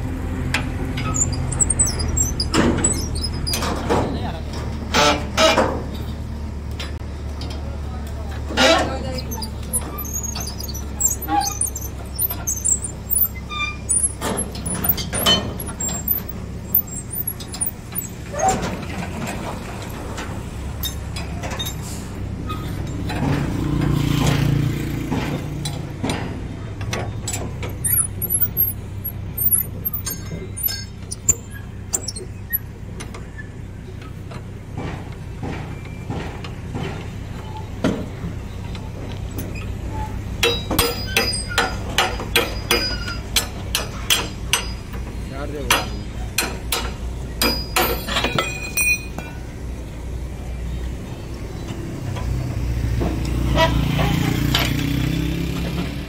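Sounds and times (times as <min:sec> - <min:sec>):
vehicle engine running: 0:00.0 - 0:48.2
spanners clinking on bolts: 0:08.6 - 0:18.6, 0:26.9 - 0:32.7, 0:40.3 - 0:49.5.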